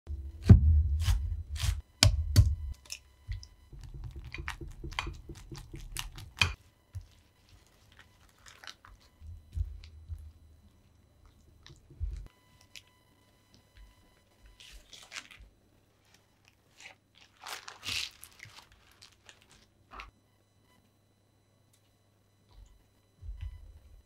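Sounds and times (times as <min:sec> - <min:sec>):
knife chopping on wooden board: 0:00.4 - 0:02.7.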